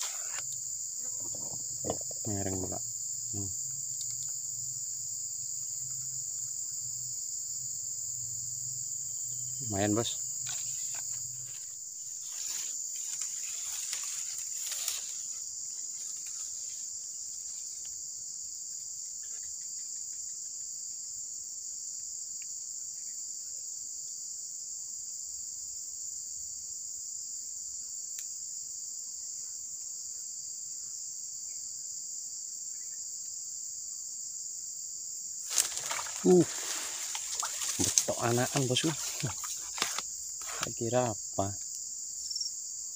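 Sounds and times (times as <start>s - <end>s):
high-pitched insect chorus: 0.0s - 42.9s
brief rustling: 10.4s - 16.8s, 35.4s - 40.8s.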